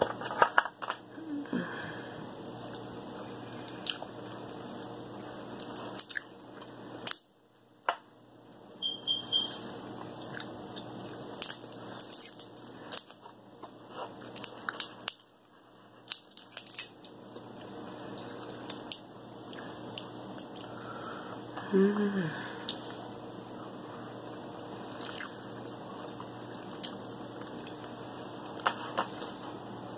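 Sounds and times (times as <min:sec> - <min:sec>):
crab shell cracking: 0:16.0 - 0:17.2
chewing: 0:24.8 - 0:28.6.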